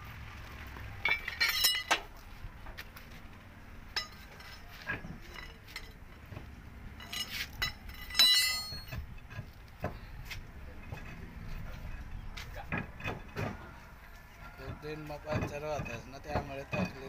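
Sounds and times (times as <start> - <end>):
metallic clinks and knocks: 1.0 - 2.2, 3.9 - 10.0.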